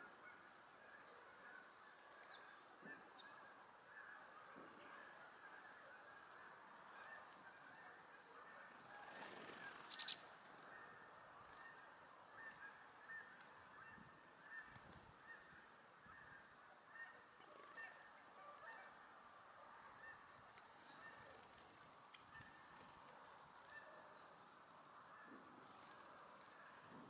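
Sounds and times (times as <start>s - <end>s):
distant geese honking: 2.7s - 27.0s.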